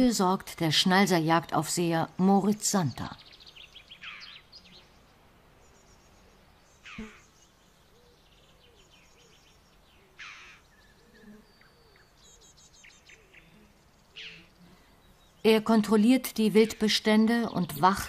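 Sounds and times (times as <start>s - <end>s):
high rapid bird trills: 3.2s - 4.9s, 6.8s - 15.5s.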